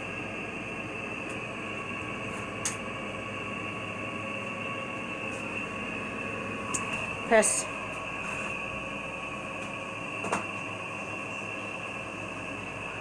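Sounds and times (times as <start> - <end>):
faint high whine: 0.0 - 13.0.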